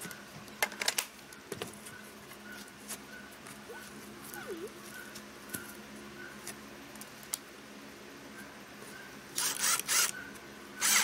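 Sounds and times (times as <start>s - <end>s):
cordless drill drilling into wood: 9.4s - 10.2s, 10.8s - 11.0s.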